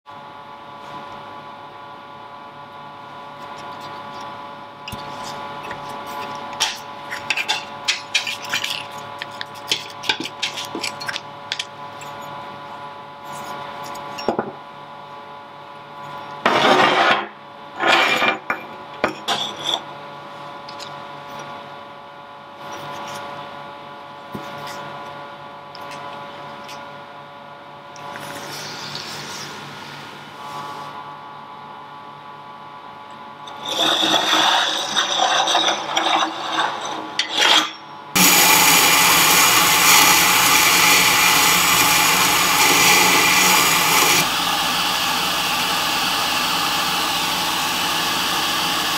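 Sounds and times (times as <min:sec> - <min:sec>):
steady electrical hum: 0:00.1 - 0:48.9
scraping rubs: 0:33.6 - 0:37.8.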